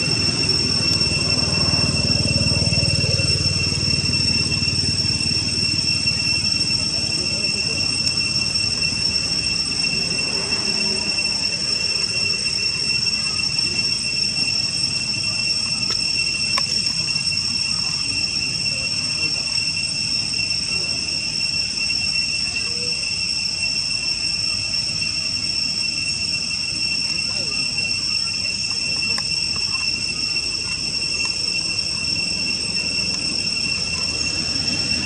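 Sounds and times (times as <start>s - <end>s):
high-pitched insect drone: 0.0s - 35.0s.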